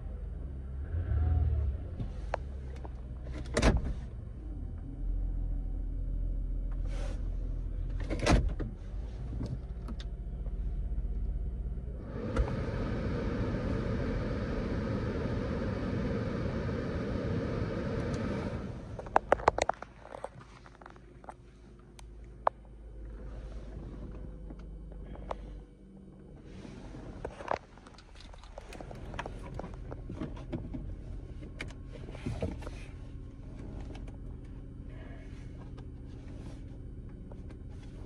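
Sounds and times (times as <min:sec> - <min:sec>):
car engine idling: 0:09.0 - 0:38.0
air rushing from vents: 0:12.0 - 0:19.6.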